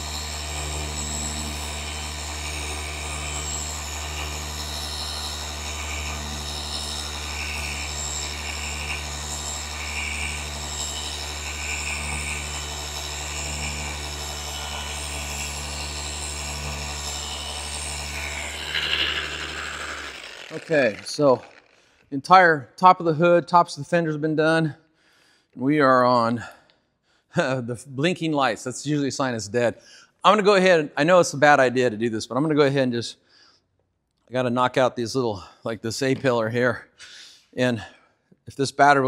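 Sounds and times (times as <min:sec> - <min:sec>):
orbital polisher motor hum: 0:00.0 - 0:21.8.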